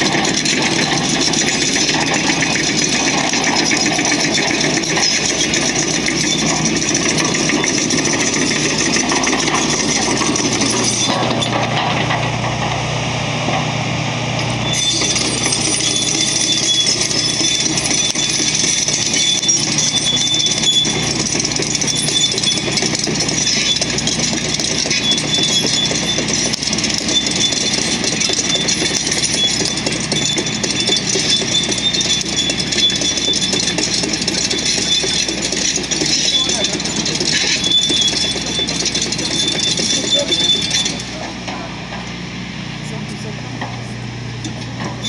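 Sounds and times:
metallic track clatter: 0.0 - 12.8, 14.4 - 42.2
diesel engine: 0.0 - 45.0
high squeal: 14.6 - 41.2.

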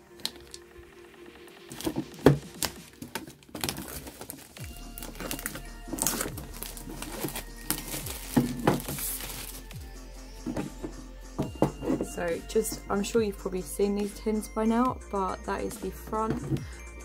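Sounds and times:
background music with held tones: 0.0 - 17.0
plastic wrap tearing and crinkling: 1.7 - 9.8.

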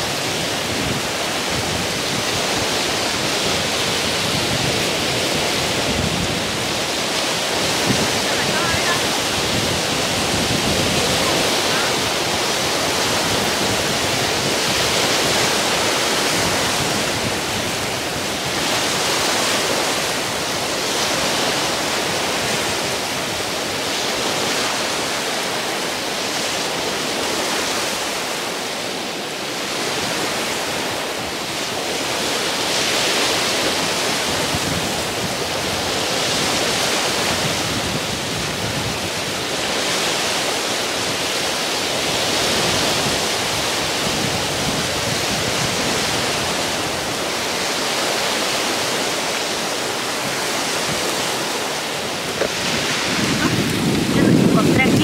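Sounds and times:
waves breaking on rocky shore: 0.0 - 55.0
wind: 0.0 - 55.0.

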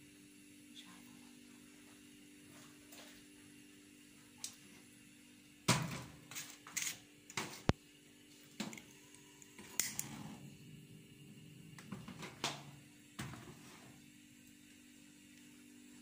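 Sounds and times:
kitchen knocks and clatters: 5.7 - 7.7, 11.8 - 13.9
low steady hum: 7.2 - 16.0.

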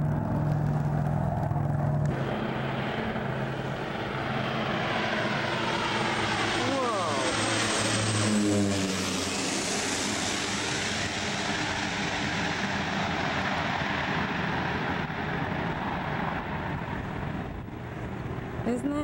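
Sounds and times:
propeller plane engine drone: 0.0 - 19.0.

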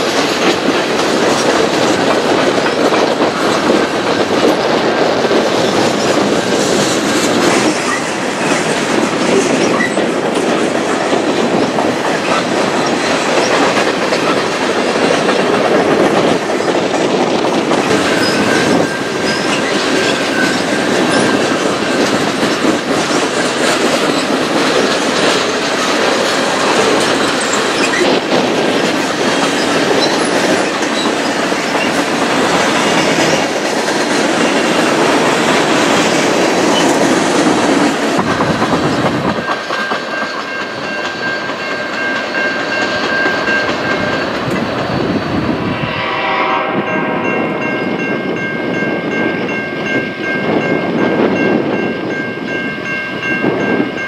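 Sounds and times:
steel wheels rolling on rail: 0.0 - 54.0
high wheel squeal: 9.6 - 10.1, 18.0 - 22.0.

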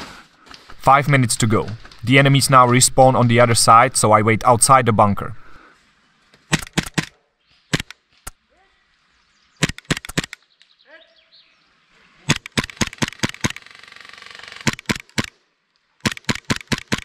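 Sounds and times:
airsoft gun shots: 6.5 - 7.9, 9.6 - 10.4, 12.3 - 13.6, 14.6 - 15.4, 16.0 - 17.0.

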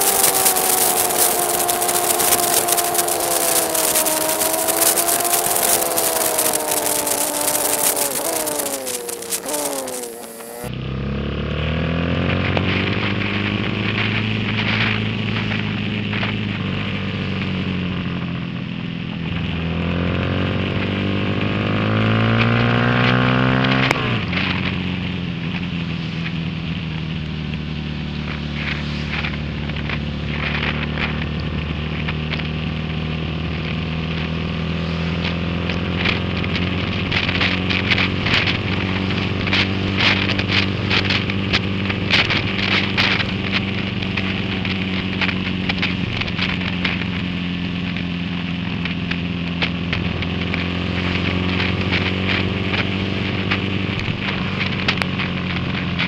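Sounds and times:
rain drops tapping camera: 0.0 - 10.7, 33.6 - 56.0
motorcycle engine: 0.0 - 56.0.

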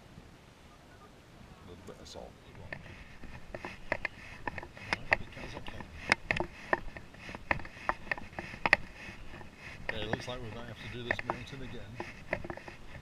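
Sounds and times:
footsteps on wooden boardwalk: 2.6 - 13.0.

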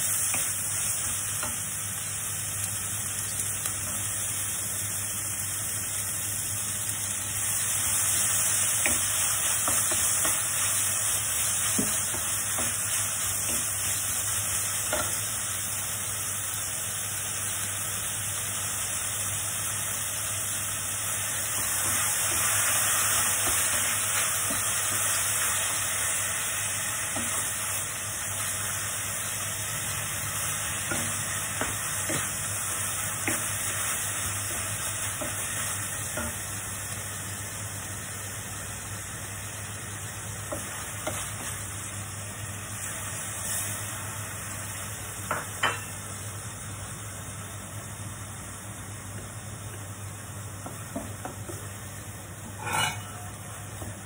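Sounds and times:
vegetables sizzling in a pan: 0.0 - 54.0
wooden spatula scraping a pan: 52.6 - 53.3.

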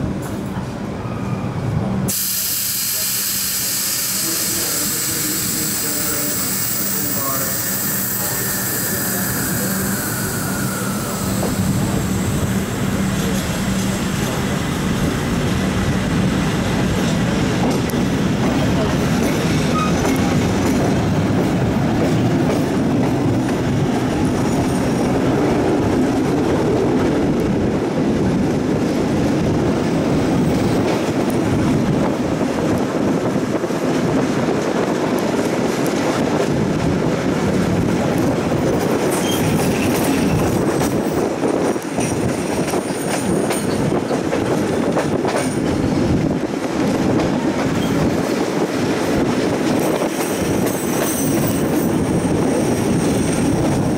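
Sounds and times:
high wheel squeal: 3.2 - 12.9, 39.1 - 40.6
train wheels clattering: 38.0 - 53.9.

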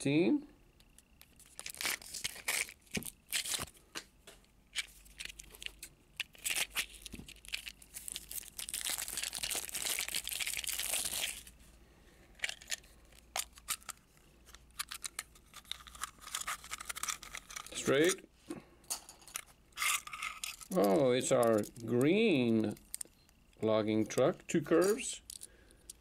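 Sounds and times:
package crinkling: 0.8 - 3.8, 4.7 - 11.6, 12.3 - 18.2, 19.3 - 26.0
package tearing: 1.2 - 3.7, 4.8 - 11.5, 14.7 - 18.0.

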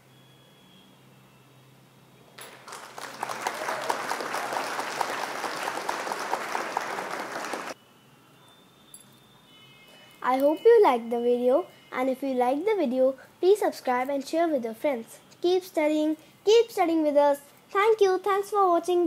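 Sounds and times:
applause sound effect: 2.4 - 7.8.

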